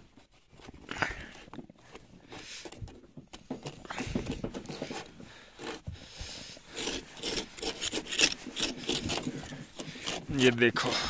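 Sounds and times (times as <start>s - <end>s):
rope scraping against snow: 3.8s - 11.0s.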